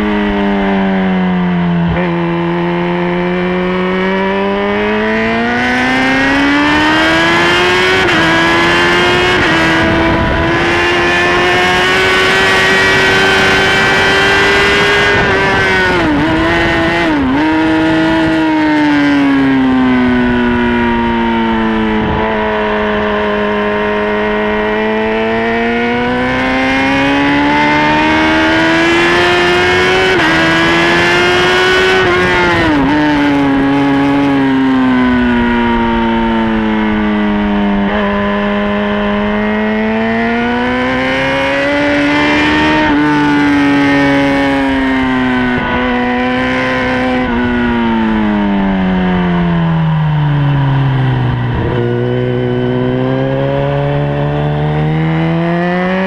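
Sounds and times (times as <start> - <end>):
motorcycle engine at high revs: 0.0 - 56.0
wind rush: 6.8 - 18.8.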